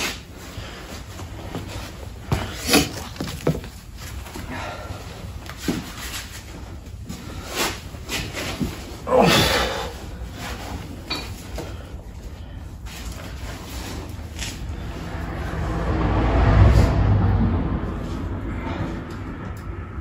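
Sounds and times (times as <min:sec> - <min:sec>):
low hum: 0:11.8 - 0:20.0.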